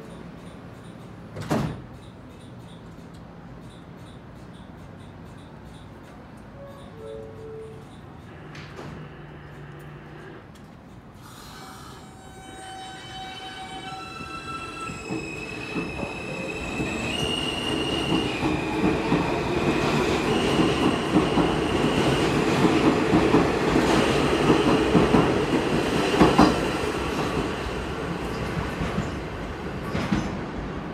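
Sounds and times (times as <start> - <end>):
subway train motor whine: 8.3 - 10.7.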